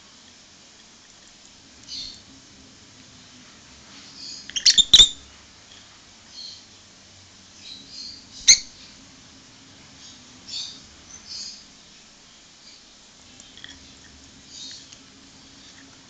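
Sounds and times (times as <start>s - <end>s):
lovebird chirping and squeaking: 4.2s - 5.2s, 7.7s - 8.7s.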